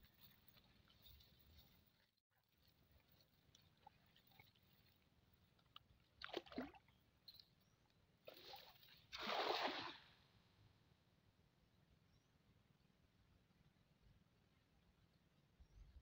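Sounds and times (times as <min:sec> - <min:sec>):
short water splashes: 0:05.6 - 0:07.0, 0:08.3 - 0:10.2
cast net splashing into water: 0:06.2 - 0:06.9, 0:08.3 - 0:10.2.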